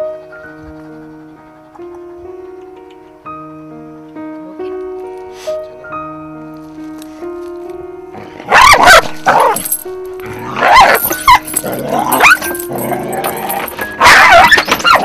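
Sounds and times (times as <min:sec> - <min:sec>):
dog snarling and yelping: 0:08.4 - 0:15.0.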